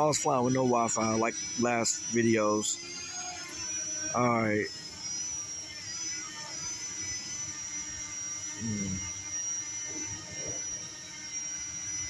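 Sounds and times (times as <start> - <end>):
drone motors whining: 0.0 - 12.0
man humming hmm: 8.6 - 9.1.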